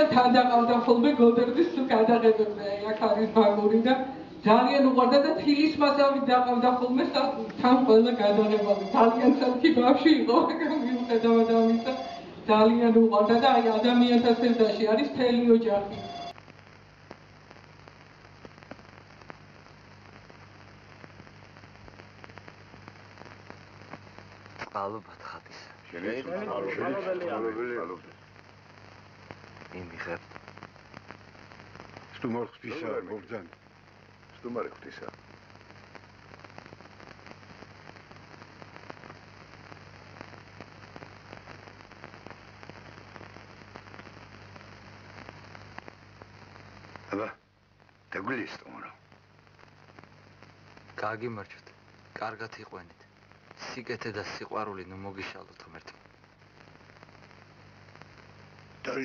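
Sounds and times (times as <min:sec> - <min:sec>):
low steady hum: 0:00.0 - 0:53.8
film surface crackle and clicks: 0:16.0 - 0:47.2, 0:47.8 - 0:59.0.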